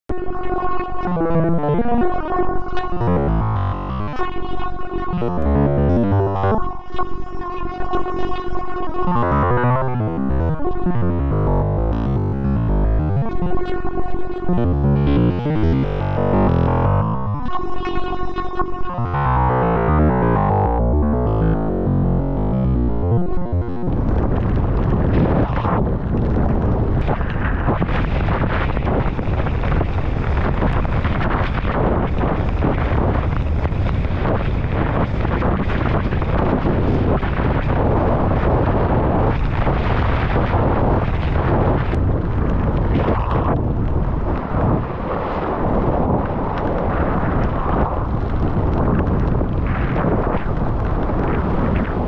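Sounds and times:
wind rushing on microphone: 0:00.1 - 0:52.0
electronic synthesizer music: 0:00.2 - 0:24.1.

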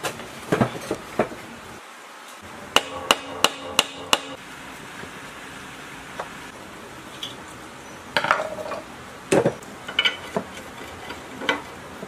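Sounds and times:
hammer striking metal: 0:02.8 - 0:04.4.

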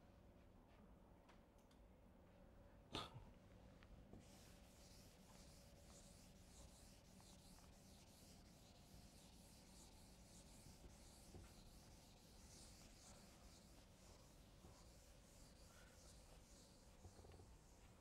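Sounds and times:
scratchy writing strokes: 0:04.2 - 0:18.0.

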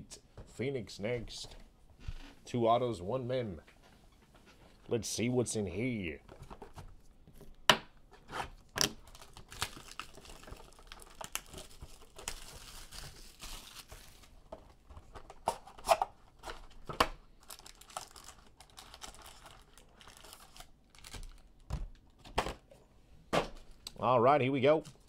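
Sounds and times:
foil packs rustling: 0:08.8 - 0:15.3, 0:16.3 - 0:21.6.

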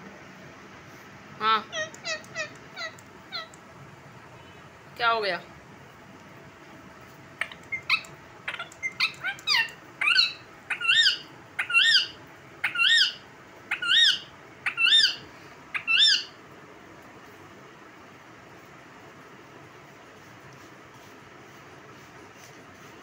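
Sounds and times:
parakeet squawking: 0:01.5 - 0:03.6, 0:07.4 - 0:16.4
bird chirps and clicks: 0:01.8 - 0:03.6, 0:07.4 - 0:11.9.

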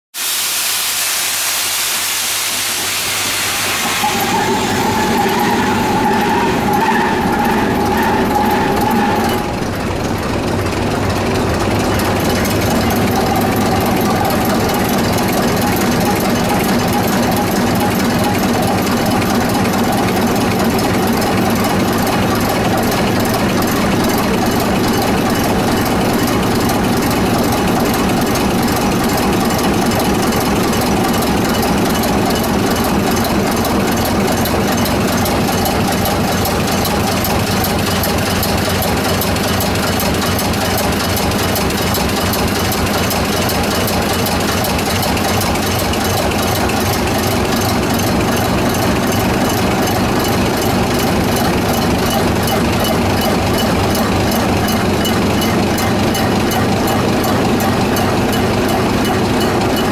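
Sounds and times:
starting air hiss: 0:00.1 - 0:42.0
engine whine: 0:02.6 - 0:59.9
diesel engine running: 0:02.7 - 0:59.9.

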